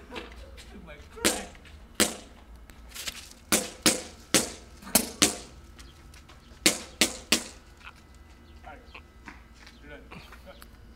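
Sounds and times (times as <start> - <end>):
sharp cracks: 1.2 - 2.3, 3.1 - 5.5, 6.6 - 7.6.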